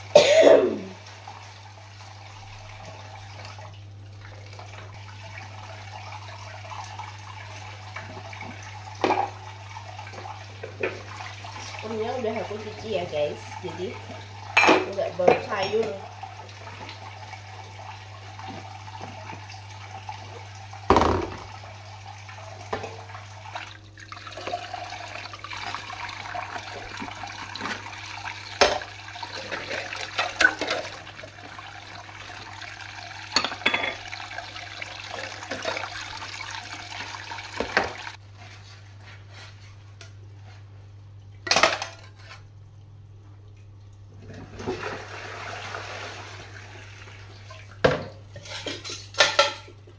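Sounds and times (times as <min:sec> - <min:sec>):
tap water running into sink: 0:00.4 - 0:38.2
crockery clinking and clattering: 0:33.3 - 0:34.1, 0:47.9 - 0:49.8.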